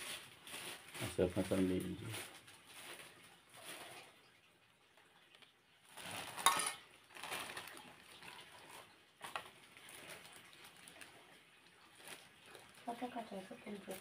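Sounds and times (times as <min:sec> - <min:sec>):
plastic bag handling: 0:00.0 - 0:04.4, 0:05.1 - 0:14.0
metal spoon scraping a pot: 0:06.3 - 0:06.8.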